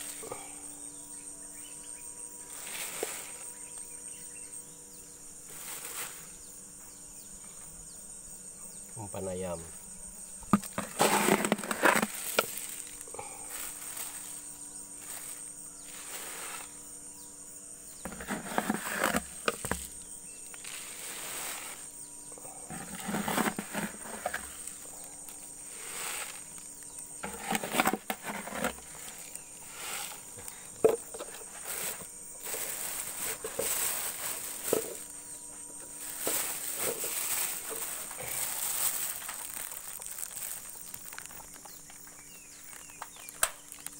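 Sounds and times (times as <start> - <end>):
high-pitched insect drone: 0.0 - 43.9
grain rustling and pouring: 2.5 - 3.7, 5.5 - 6.4, 10.5 - 16.8, 18.0 - 41.8.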